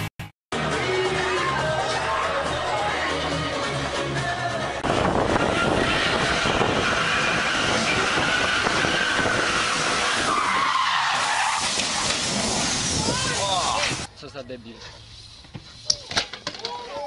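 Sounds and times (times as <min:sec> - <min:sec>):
car tyres squealing: 0:04.8 - 0:14.1.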